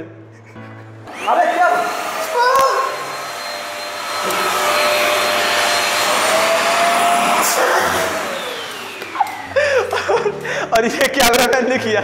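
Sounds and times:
vacuum cleaner motor: 1.0s - 10.4s.

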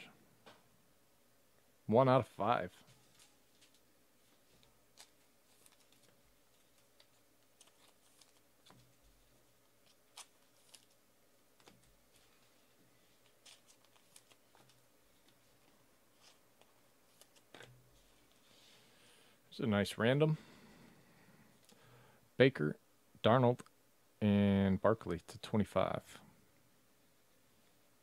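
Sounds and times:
trading cards clicking and rustling: 4.5s - 11.0s, 13.2s - 17.8s.

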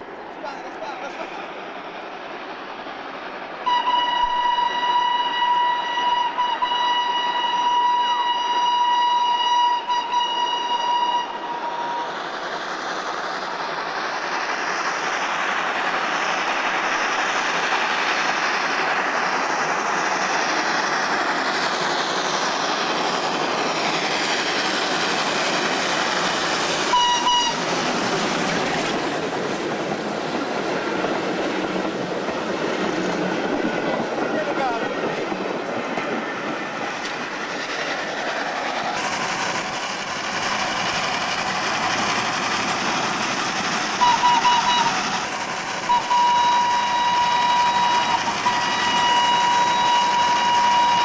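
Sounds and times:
train running noise: 0.0s - 51.0s
steam locomotive whistle: 3.6s - 12.2s, 26.8s - 27.7s, 43.9s - 51.0s.

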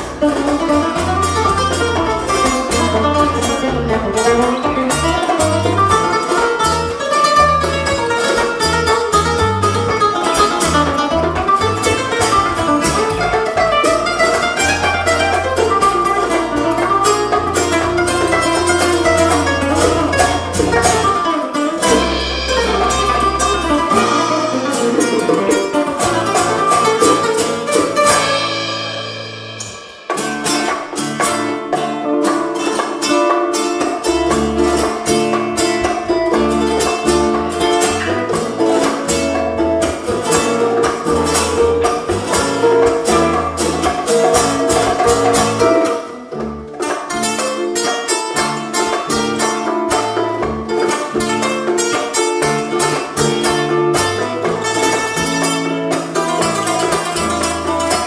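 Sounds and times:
acoustic guitars plucking: 0.0s - 58.0s
bass guitar: 0.0s - 58.0s
drums and hand percussion: 0.0s - 58.0s.

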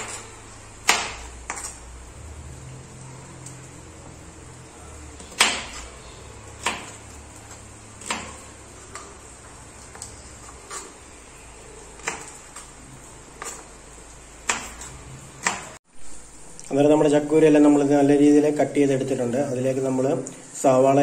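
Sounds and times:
knife striking plastic cutting board: 5.2s - 5.9s, 6.6s - 7.0s, 8.0s - 9.1s, 12.0s - 12.4s, 14.5s - 15.7s.

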